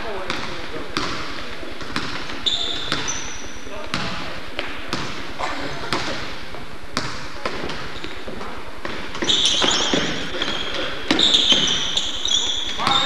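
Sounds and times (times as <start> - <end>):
basketball bouncing on wooden floor: 0.2 - 5.2, 5.9 - 12.0
shoes squeaking on floor: 2.0 - 3.8, 7.5 - 13.0.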